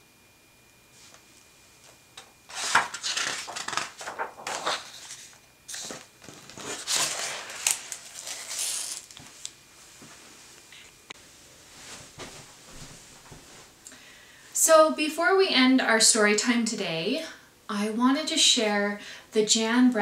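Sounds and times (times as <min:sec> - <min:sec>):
book pages rustling: 0:02.5 - 0:09.5.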